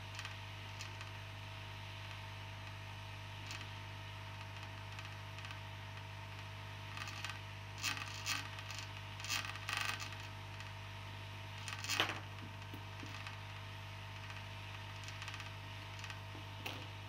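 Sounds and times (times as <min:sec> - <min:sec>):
hot-air station humming: 0:15.1 - 0:17.0.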